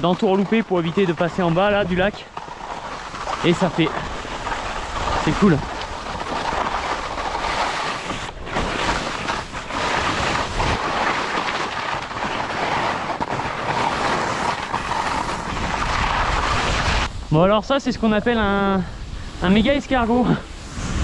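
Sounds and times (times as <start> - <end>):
skis scraping over snow: 0.0 - 21.0.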